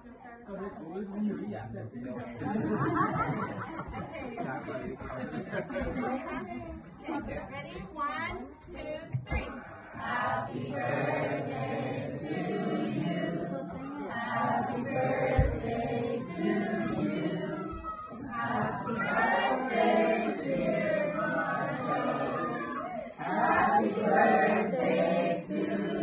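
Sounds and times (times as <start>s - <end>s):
group singing unaccompanied: 9.1s - 26.0s.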